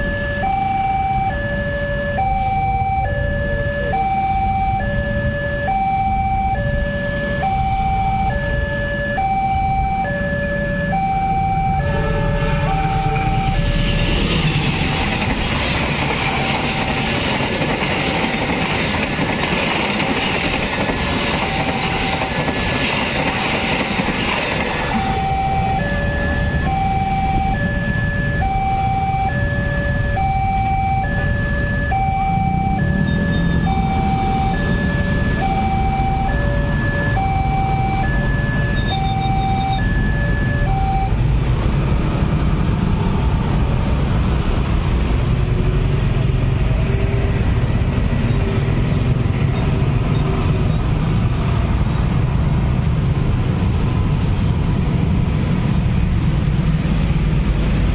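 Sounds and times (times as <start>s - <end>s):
two-tone crossing alarm chime: 0.0s - 14.2s, 16.2s - 17.3s, 20.1s - 24.0s, 24.8s - 41.3s
train wheels rushing on rails: 12.3s - 28.5s, 32.8s - 57.9s.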